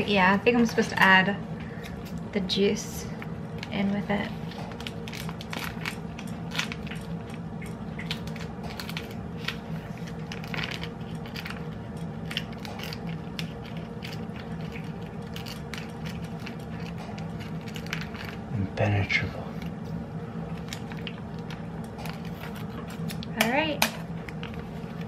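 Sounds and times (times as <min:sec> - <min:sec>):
steady low hum: 0:00.0 - 0:25.0
package crinkling and clicking: 0:04.5 - 0:18.5, 0:20.5 - 0:25.0.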